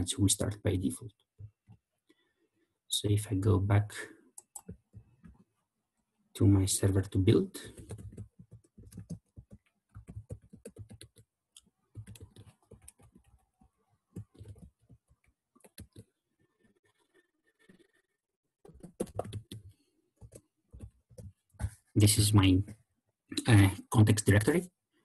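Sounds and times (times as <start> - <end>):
typing on computer keyboard: 7.7 - 11.3, 11.9 - 13.4, 14.2 - 16.0, 18.6 - 21.4.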